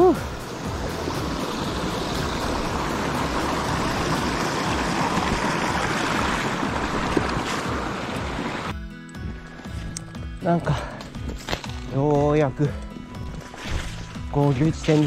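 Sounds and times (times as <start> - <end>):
stream flowing over rocks: 0.2 - 8.7.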